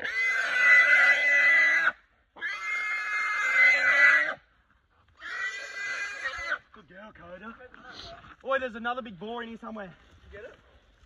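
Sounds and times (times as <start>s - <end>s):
pig squealing: 0.0s - 4.4s, 5.2s - 6.6s.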